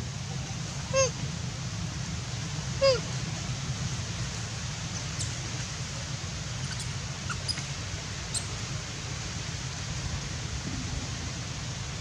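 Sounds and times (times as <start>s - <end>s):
steady outdoor hiss: 0.0s - 12.0s
low rumble: 10.1s - 12.0s.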